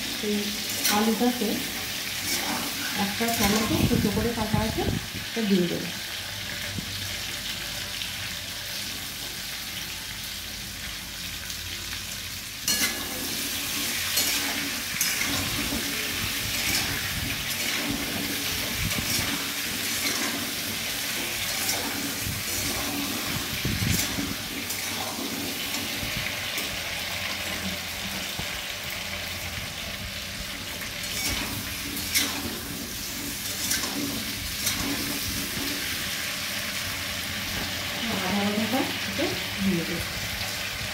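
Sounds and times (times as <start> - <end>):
food sizzling in oil: 0.0 - 40.9
metal spatula scraping pan: 0.6 - 4.2, 12.7 - 28.3, 30.8 - 36.9.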